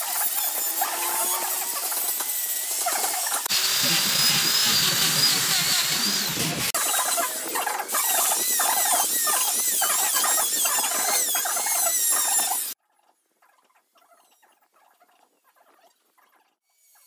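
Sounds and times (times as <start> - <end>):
hand carving tool scraping: 0.0 - 12.8
rotary grinder cutting wood: 0.0 - 12.8.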